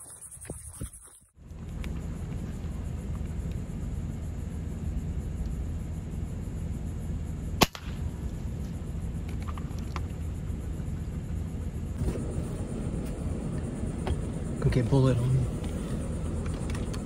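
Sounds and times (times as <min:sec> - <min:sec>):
steady low rumble: 0:01.3 - 0:17.0
air rifle shot crack: 0:07.6 - 0:08.0.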